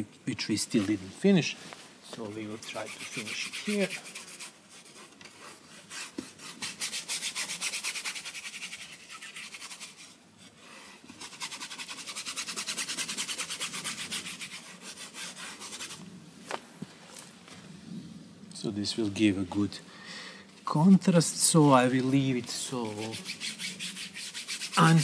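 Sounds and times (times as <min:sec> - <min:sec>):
paintbrush scrubbing on canvas: 0:02.1 - 0:10.2, 0:11.1 - 0:16.0, 0:21.8 - 0:25.0.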